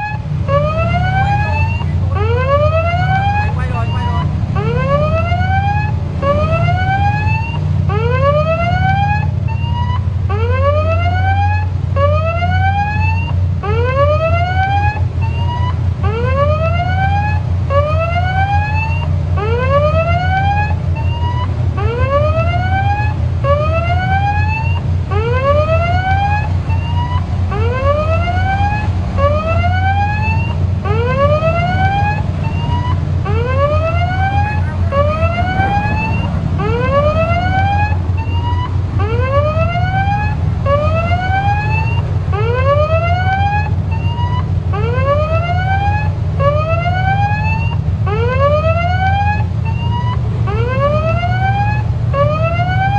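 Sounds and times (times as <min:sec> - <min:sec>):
steady low rumble: 0:00.0 - 0:09.5, 0:20.8 - 0:48.8
ship siren rising whoop: 0:00.0 - 0:52.9.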